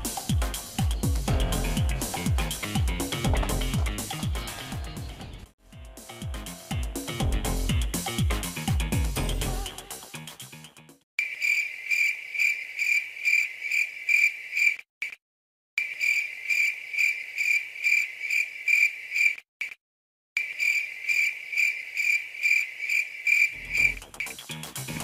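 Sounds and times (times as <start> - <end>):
cricket chirping: 11.2 - 14.8, 15.8 - 19.4, 20.4 - 24.4.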